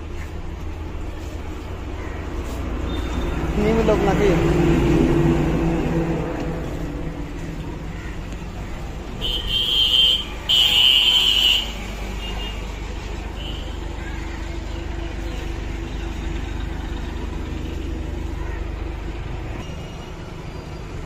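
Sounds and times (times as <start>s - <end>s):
low rumble of road traffic: 0.0s - 21.0s
vehicle engine running: 0.0s - 21.0s
vehicle horn honks: 9.2s - 12.6s.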